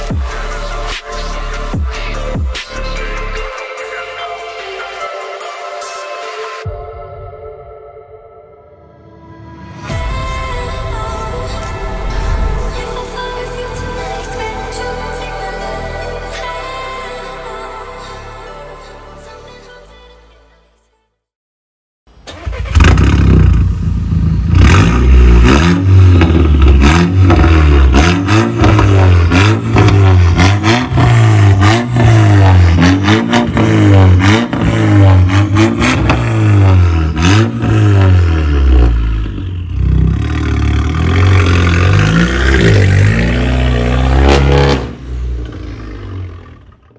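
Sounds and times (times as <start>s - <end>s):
car engine revving: 22.3s - 46.9s.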